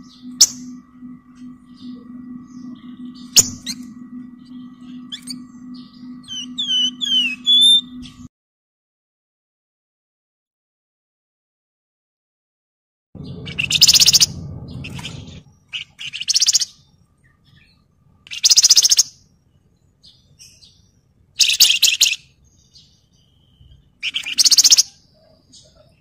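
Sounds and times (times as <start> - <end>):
bird singing trilled phrases: 0.0 - 8.3, 13.2 - 26.0
low rumble: 0.0 - 8.3, 13.2 - 16.0.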